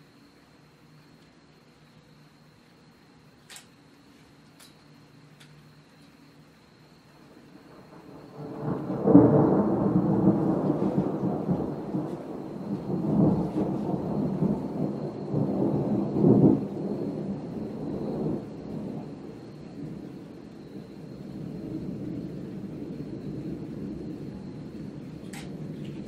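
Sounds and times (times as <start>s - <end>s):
thunder rumbling: 7.2s - 26.0s.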